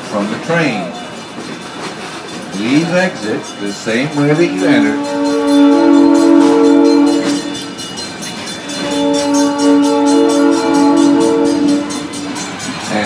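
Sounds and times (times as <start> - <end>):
train horn blasts: 4.6 - 7.8, 8.6 - 12.4.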